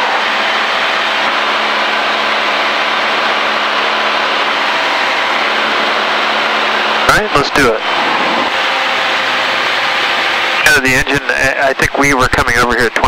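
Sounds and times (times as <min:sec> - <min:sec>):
propeller plane engine drone: 0:00.0 - 0:13.0.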